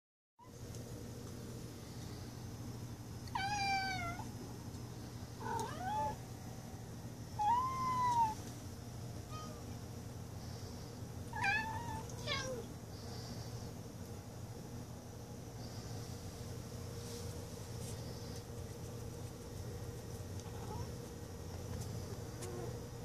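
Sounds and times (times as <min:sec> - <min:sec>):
cat meowing: 0:03.3 - 0:04.2, 0:05.4 - 0:06.2, 0:11.4 - 0:12.7.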